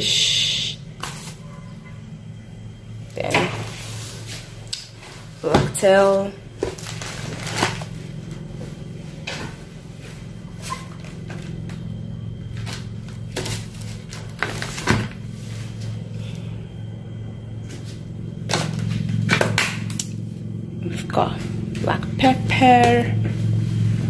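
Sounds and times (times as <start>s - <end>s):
steady low hum: 0.0s - 24.0s
plastic packages rustling: 6.6s - 8.4s, 12.5s - 15.2s.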